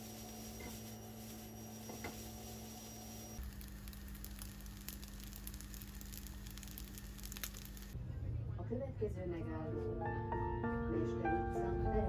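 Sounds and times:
rice sizzling in a frying pan: 0:00.0 - 0:08.0.

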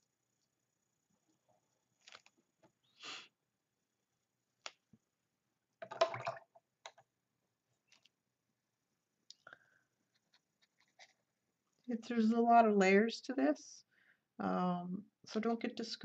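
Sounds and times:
paintbrush on plastic palette: 0:10.0 - 0:11.4.

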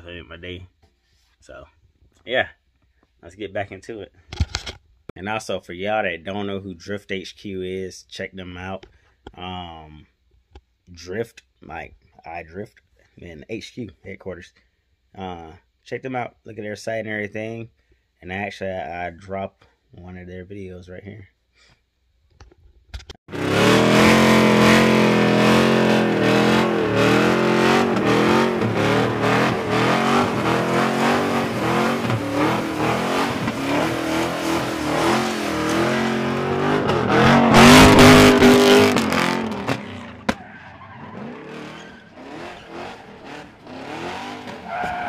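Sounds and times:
car engine revving high: 0:23.3 - 0:40.4, 0:41.2 - 0:45.0.

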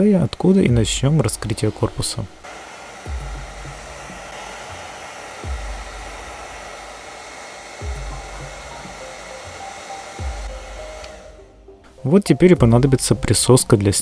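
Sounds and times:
hair dryer blowing: 0:00.0 - 0:11.6.

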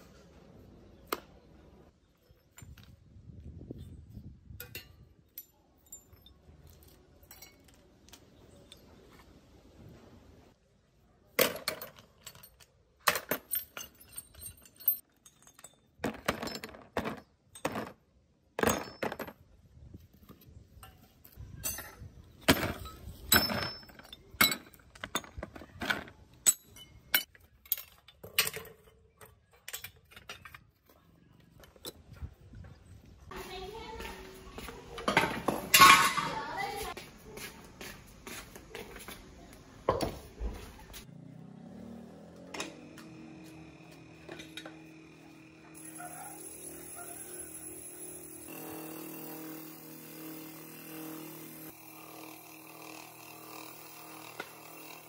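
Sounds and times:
metal bicycle parts clanking: 0:03.7 - 0:09.1, 0:11.4 - 0:18.0, 0:20.8 - 0:32.7, 0:34.9 - 0:36.8, 0:42.5 - 0:48.4.

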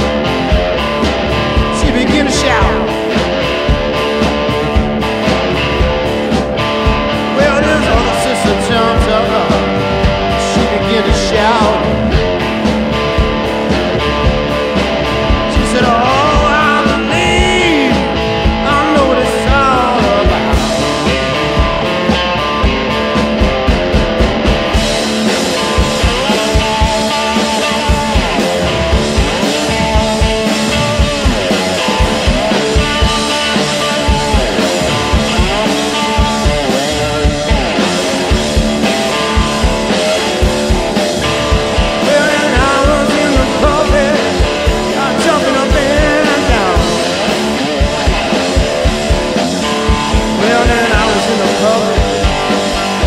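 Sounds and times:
guitar: 0:00.0 - 0:53.0
steady drum beat: 0:00.0 - 0:53.0
person singing: 0:01.6 - 0:03.1, 0:07.2 - 0:12.2, 0:15.3 - 0:21.4, 0:41.2 - 0:47.7, 0:49.9 - 0:53.0.

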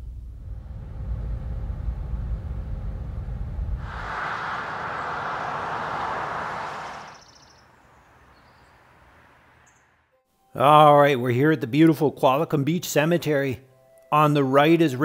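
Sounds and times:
low engine rumble: 0:00.0 - 0:09.6
loud even rushing noise: 0:03.7 - 0:08.3.

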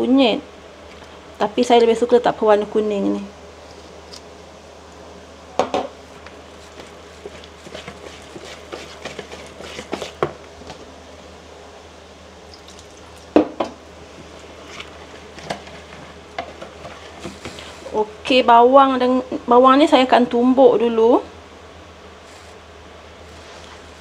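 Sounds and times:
whisk stirring batter in bowl: 0:06.6 - 0:10.4, 0:14.7 - 0:17.7.

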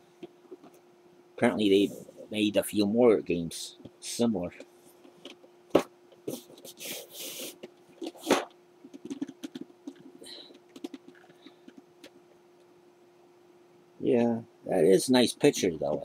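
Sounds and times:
game pieces clicking and knocking: 0:08.0 - 0:12.2.

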